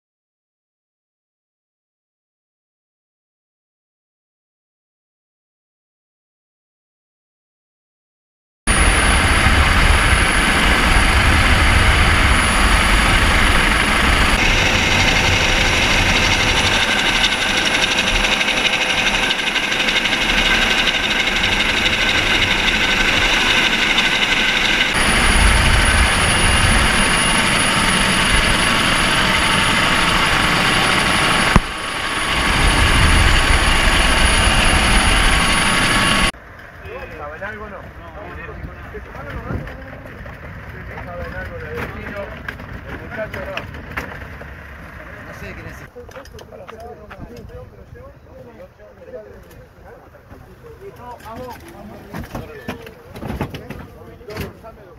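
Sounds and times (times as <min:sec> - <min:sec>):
helicopter turbine and rotor: 0:08.7 - 0:45.9.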